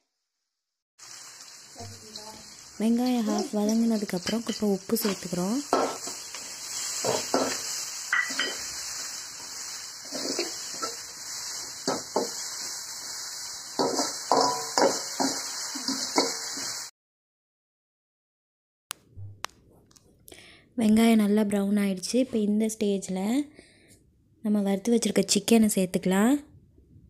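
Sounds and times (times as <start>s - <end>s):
onions sizzling in hot oil: 1.0s - 16.9s
metal spoon scraping a pan: 3.0s - 12.4s, 13.8s - 16.8s.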